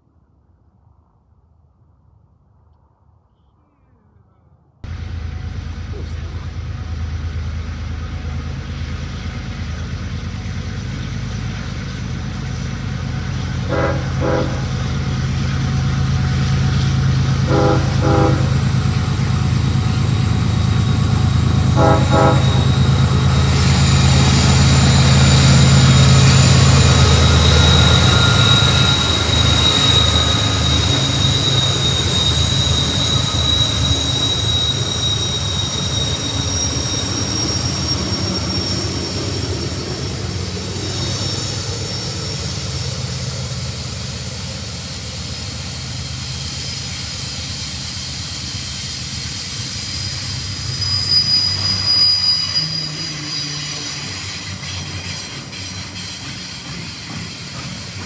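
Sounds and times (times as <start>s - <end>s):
diesel locomotives running: 4.8s - 58.0s
high wheel squeal: 8.3s - 58.0s
train horn toots: 13.5s - 15.2s, 17.2s - 18.8s, 21.6s - 23.8s.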